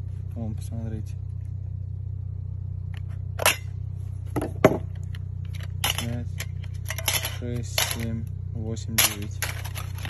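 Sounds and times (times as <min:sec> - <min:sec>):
low hum: 0:00.0 - 0:10.0
metal lids clinking: 0:05.6 - 0:08.1, 0:09.0 - 0:10.0.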